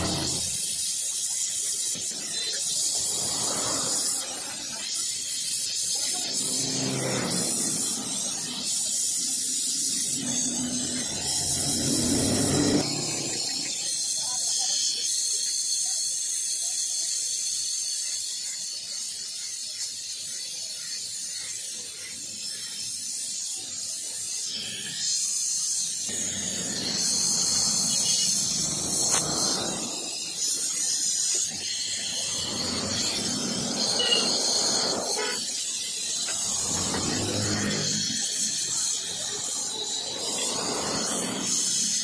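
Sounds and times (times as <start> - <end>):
gas torch hissing: 0.0 - 42.0.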